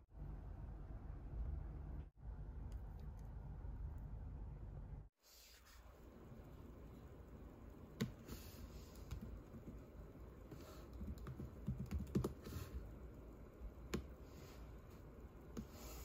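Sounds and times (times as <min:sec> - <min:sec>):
laptop keyboard typing: 0:07.9 - 0:13.0.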